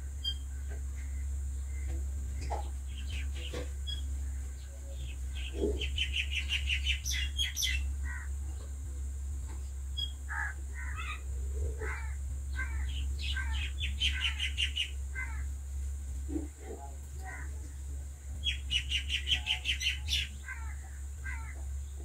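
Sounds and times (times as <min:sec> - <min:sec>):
small birds chirping: 0:00.0 - 0:08.9, 0:09.5 - 0:15.5, 0:16.4 - 0:22.0
steady low hum: 0:00.0 - 0:22.0
crows cawing: 0:07.1 - 0:08.4, 0:10.3 - 0:15.6, 0:17.2 - 0:17.6, 0:18.4 - 0:21.7.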